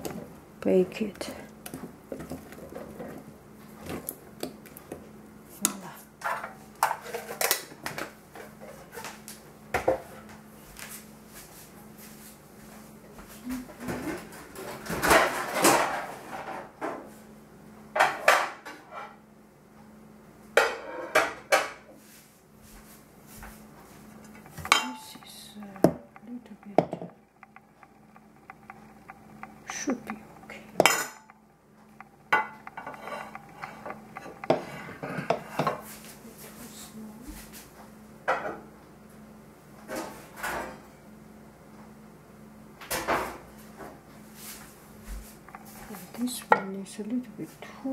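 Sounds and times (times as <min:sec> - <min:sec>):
faint low hum: 0:23.7 - 0:37.7
pans and dishes clattering: 0:24.2 - 0:36.0.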